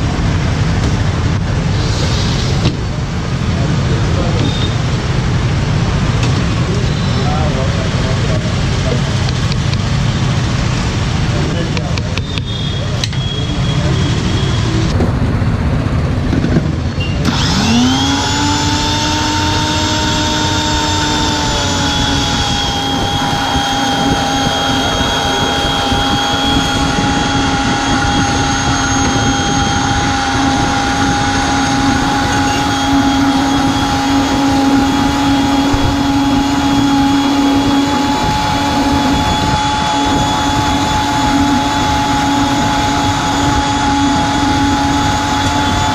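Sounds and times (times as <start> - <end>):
electric blender motor whining: 17.2 - 45.9.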